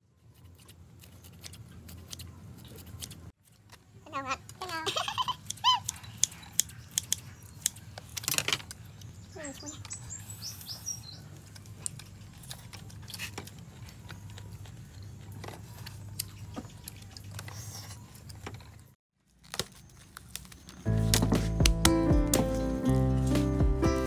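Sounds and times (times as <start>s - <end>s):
faint chewing: 10.6s - 18.9s.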